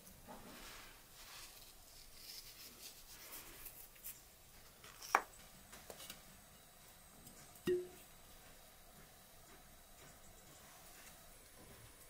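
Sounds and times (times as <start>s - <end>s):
faint scrapes and ticks: 0.3s - 6.2s.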